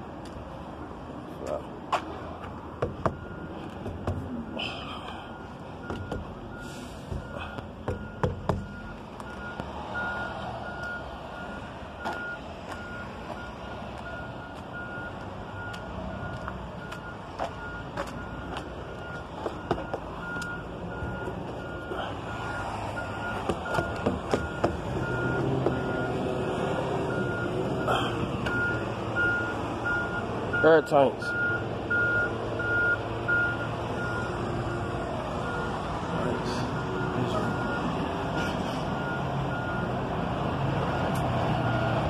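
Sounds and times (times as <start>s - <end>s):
low vehicle rumble: 0.0s - 30.6s
sharp knocks and clicks: 2.8s - 4.3s, 5.9s - 6.4s, 7.8s - 8.7s, 23.4s - 25.8s
backup alarm beeping: 2.8s - 26.3s, 27.1s - 40.0s.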